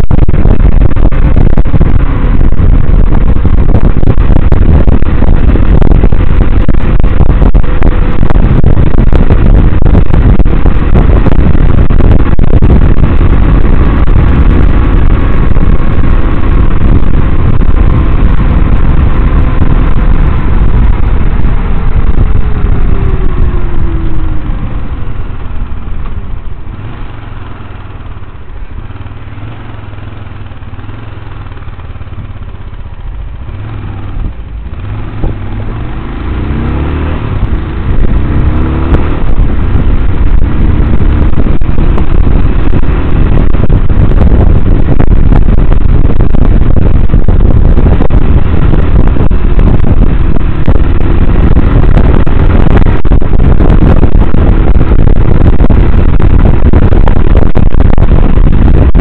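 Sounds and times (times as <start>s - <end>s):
motorcycle engine: 0.0s - 59.0s
wind rumble on microphone: 0.0s - 59.0s.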